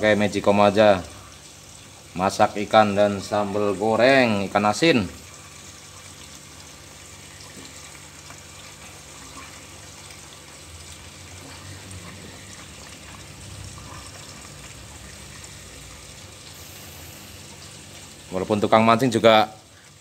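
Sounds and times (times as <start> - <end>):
food sizzling in oil: 5.1 - 18.4.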